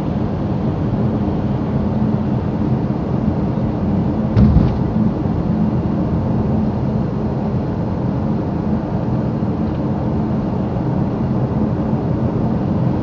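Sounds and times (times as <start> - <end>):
car engine drone: 4.2 - 8.0
tyres on the road: 4.4 - 6.3.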